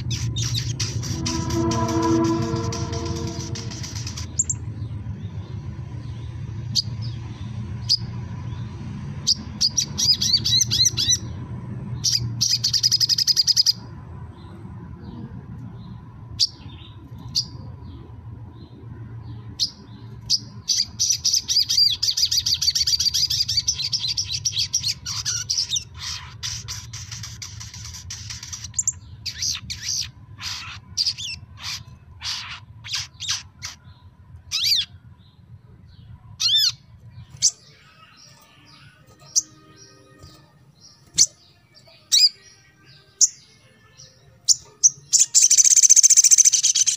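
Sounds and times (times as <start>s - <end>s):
bird chirps: 0.0s - 5.4s, 36.4s - 46.9s
steady low hum: 0.0s - 25.1s, 27.4s - 45.5s
sunbird twittering trills: 0.0s - 46.9s.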